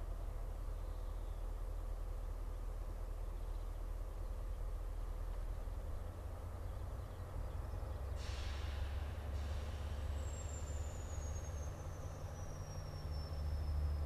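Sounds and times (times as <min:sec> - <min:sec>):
locomotive engine rumbling: 0:00.0 - 0:14.0
air release hiss: 0:08.2 - 0:11.2
faint high whine: 0:10.0 - 0:14.0.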